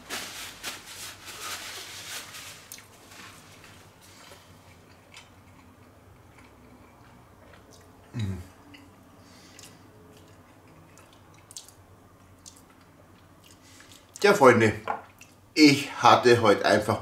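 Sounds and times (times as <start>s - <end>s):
person chewing: 4.1s - 14.2s.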